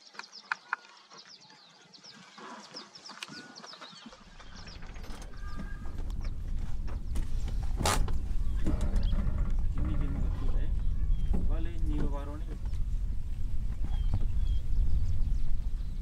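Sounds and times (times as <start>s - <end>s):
birds chirping: 0.0s - 16.0s
low rumble: 4.3s - 16.0s.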